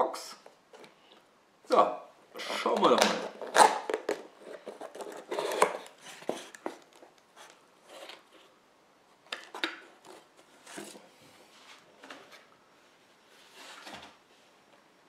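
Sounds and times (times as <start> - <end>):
cardboard rustling and scraping: 2.7 - 8.5, 9.4 - 14.5
tape peeling off cardboard: 3.3 - 8.2.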